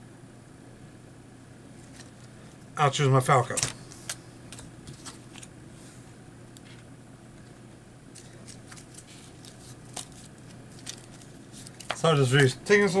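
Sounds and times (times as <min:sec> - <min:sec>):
trading cards clicking and rustling: 0:03.4 - 0:05.5, 0:07.4 - 0:12.6.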